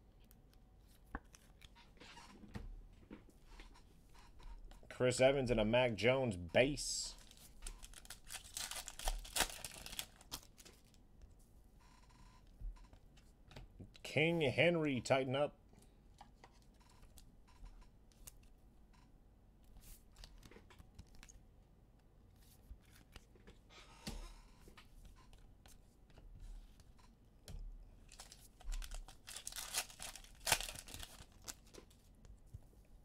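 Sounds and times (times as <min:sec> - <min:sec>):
wrapper tearing and crinkling: 0:07.2 - 0:10.8, 0:28.1 - 0:31.8.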